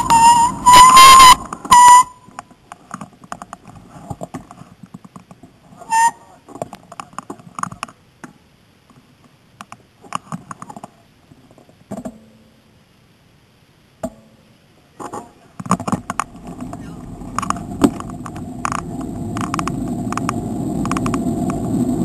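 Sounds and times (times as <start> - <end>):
whistle blast: 0.0 - 2.3, 5.9 - 6.2
bicycles clicking and ticking: 16.0 - 22.0.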